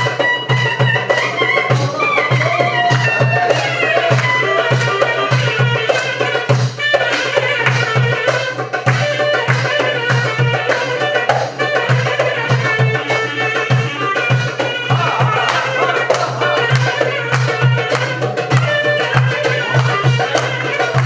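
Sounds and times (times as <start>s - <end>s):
clarinet melody: 0.0s - 21.0s
hand drum beat: 0.0s - 21.0s.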